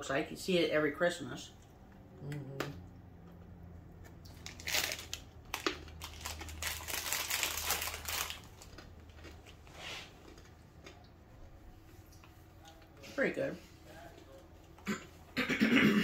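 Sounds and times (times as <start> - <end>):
plastic bag crinkling: 4.2 - 9.6.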